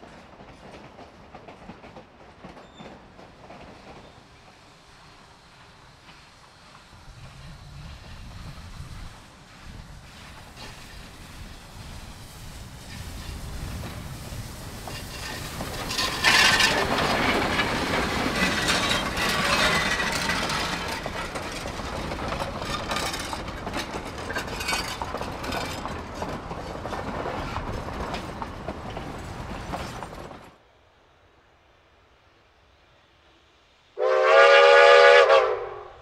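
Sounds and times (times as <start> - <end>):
steam train passing: 0.0 - 36.0
wheels clattering on rails: 5.6 - 30.6.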